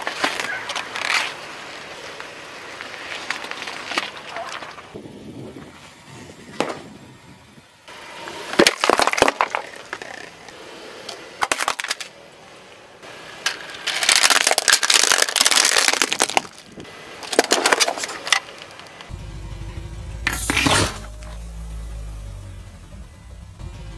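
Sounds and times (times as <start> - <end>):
tyre crushing plastic objects: 0.0 - 4.9, 8.5 - 12.2, 13.4 - 19.1.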